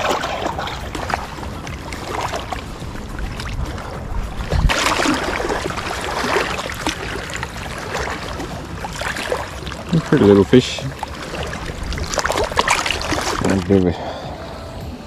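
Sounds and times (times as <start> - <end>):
low rumble: 0.0 - 10.1
waves lapping on rocky shore: 0.0 - 14.7.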